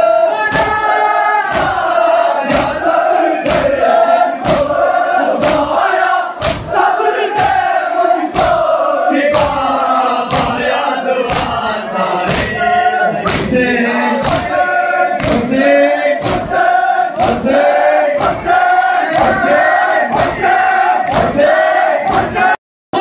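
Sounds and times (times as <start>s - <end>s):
crowd of men chanting: 0.0s - 23.0s.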